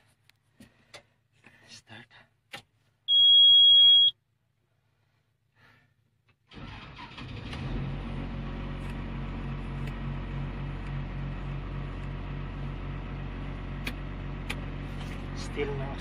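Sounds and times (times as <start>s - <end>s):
diesel engine idling: 7.6s - 16.0s.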